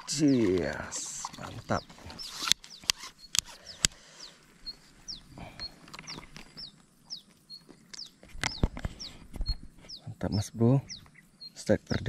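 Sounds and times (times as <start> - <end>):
sharp clicks: 2.2 - 4.0.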